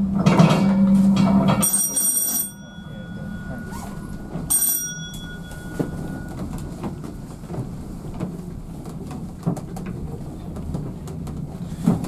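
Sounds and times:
train coach rumble: 0.0 - 12.0
bell ringing: 1.5 - 7.3
wheels clicking on track: 1.6 - 12.0.

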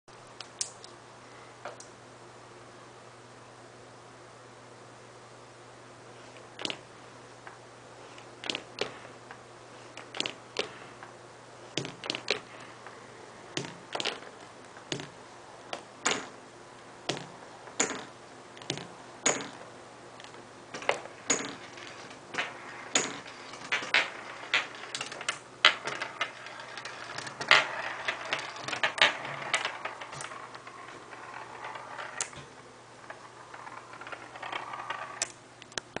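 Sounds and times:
marbles rolling rattle: 20.8 - 35.4.

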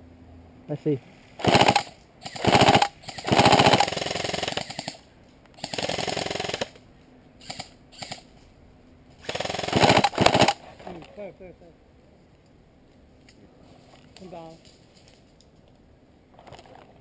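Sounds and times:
airsoft rifles automatic fire: 1.4 - 6.8, 9.2 - 10.6.

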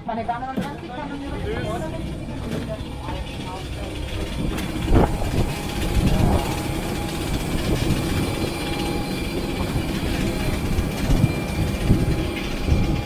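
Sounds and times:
machinery low rumble: 0.0 - 13.0.

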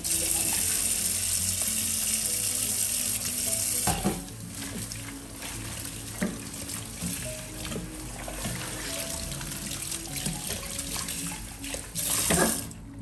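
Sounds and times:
background music: 0.0 - 13.0
dishes knocking: 3.8 - 4.3
tap shutting off with clunk: 3.8 - 4.3, 6.2 - 6.4
tap running into sink: 3.8 - 4.9, 6.2 - 8.8.

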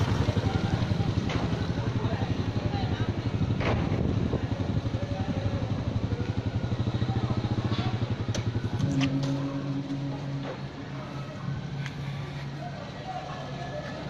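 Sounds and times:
motor scooter engine idling: 0.0 - 14.0
deep engine drone: 5.1 - 13.6.

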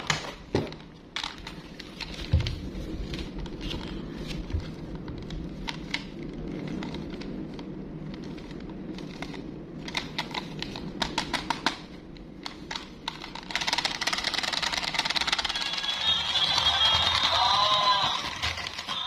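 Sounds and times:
toy motor clicking rattle: 13.2 - 19.0.

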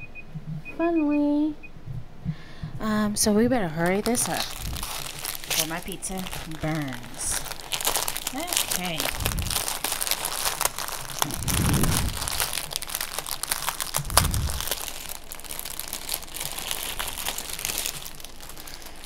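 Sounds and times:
plastic packaging crinkling: 3.8 - 19.0.

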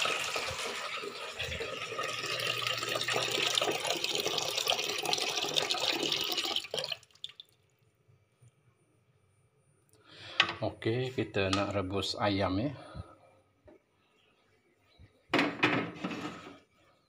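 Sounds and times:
water running into a metal pot: 0.0 - 7.6.

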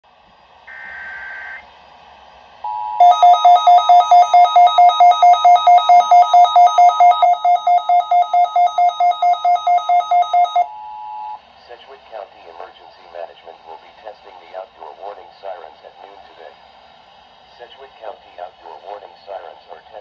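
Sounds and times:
radio alarm beeps: 0.7 - 1.6, 2.7 - 11.4
steady attention tone: 0.7 - 1.7, 2.7 - 11.4.

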